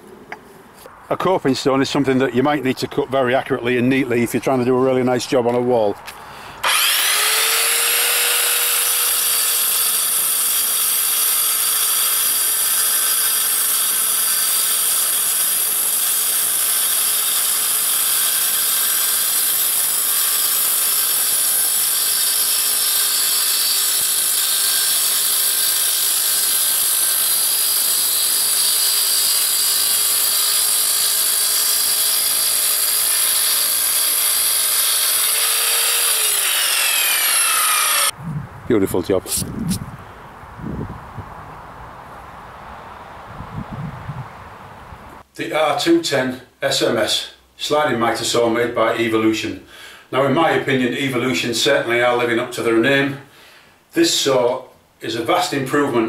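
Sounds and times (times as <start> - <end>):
mitre saw cutting stone: 6.6 - 38.2.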